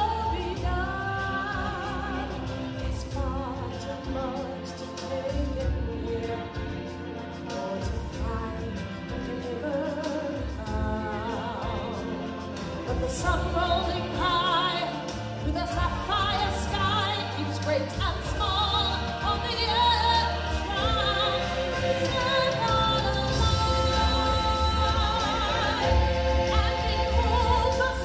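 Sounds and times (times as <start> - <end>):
orchestral backing: 0.0 - 28.0
person singing with vibrato: 0.0 - 28.0
heavy bass: 10.6 - 28.0.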